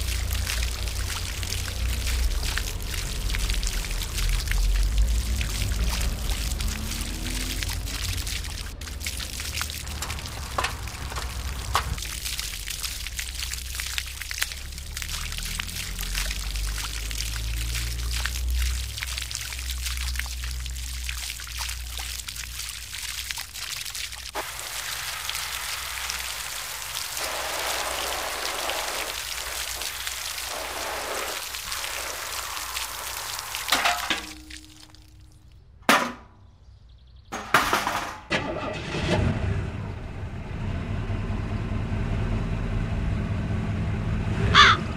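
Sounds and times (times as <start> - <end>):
water stream splashing: 0.0 - 35.8.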